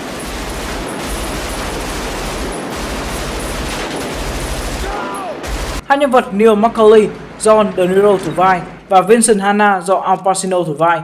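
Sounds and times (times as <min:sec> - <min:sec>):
automatic rifle fire: 0:00.0 - 0:05.8.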